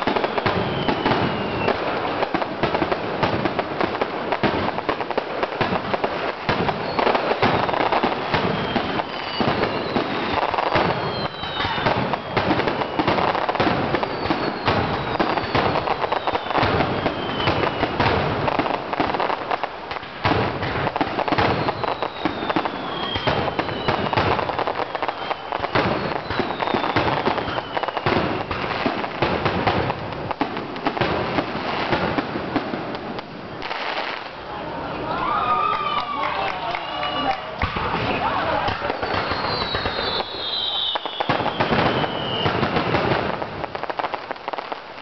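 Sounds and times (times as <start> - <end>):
firework whistles falling in pitch: 0.0 - 2.3, 6.5 - 19.3, 21.2 - 28.9, 35.2 - 43.1
fireworks bursting and crackling: 0.0 - 45.0.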